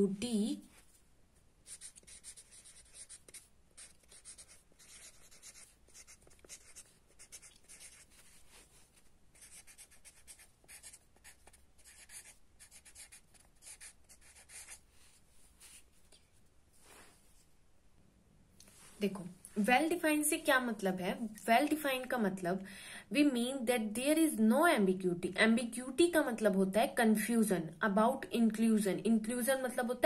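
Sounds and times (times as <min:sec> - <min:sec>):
marker pen scratching on paper: 0:01.6 - 0:15.8.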